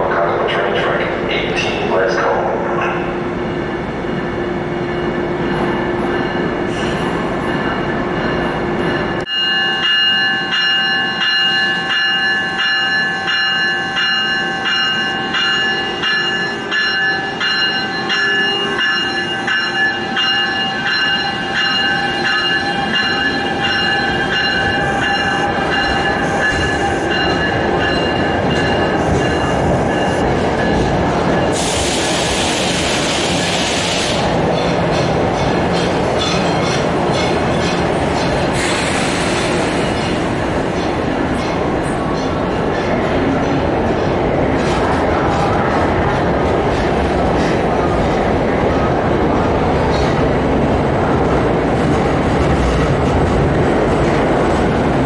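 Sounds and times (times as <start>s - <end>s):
train cars rumbling: 0.0s - 55.0s
train wheels squealing on rails: 30.6s - 42.9s
loud hiss: 31.6s - 34.2s, 38.5s - 40.0s.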